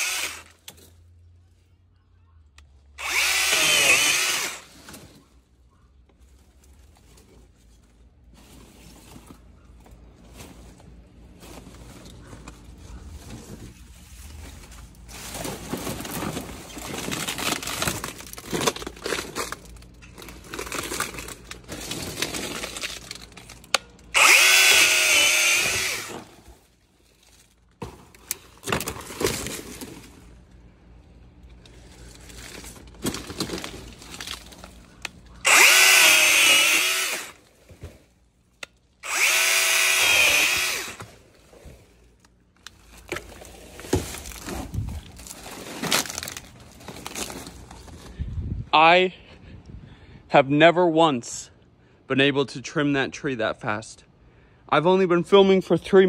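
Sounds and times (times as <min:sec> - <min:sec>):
electric chainsaw motor whining: 0:00.0 - 0:00.6, 0:03.0 - 0:04.7, 0:24.1 - 0:26.4, 0:35.4 - 0:37.4, 0:39.0 - 0:41.2.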